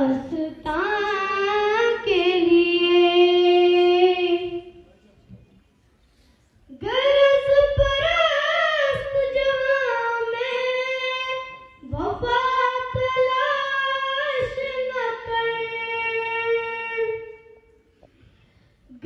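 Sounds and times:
person singing unaccompanied: 6.7s - 17.6s.

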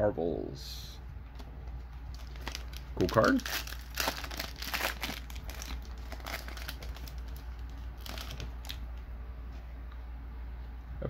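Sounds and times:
foil wrapper crinkling and tearing: 2.1s - 8.8s.

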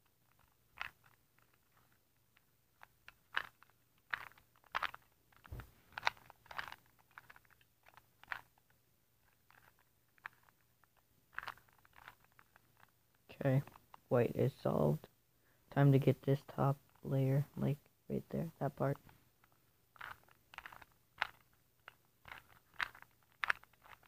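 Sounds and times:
puzzle cube clicking as turned: 0.2s - 14.1s, 19.0s - 24.0s.

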